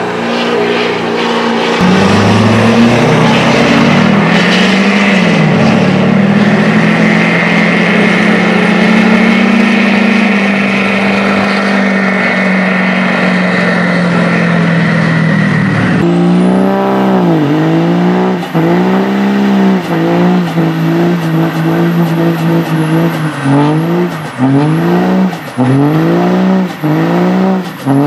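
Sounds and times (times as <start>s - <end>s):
diesel engine at high revs: 0.0s - 28.0s
diesel pickup revving: 0.0s - 28.0s
tyres spinning and squealing: 16.9s - 28.0s.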